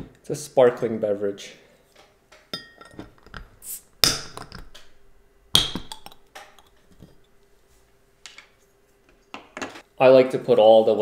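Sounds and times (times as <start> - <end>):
tableware clicking and clinking: 2.4 - 4.9.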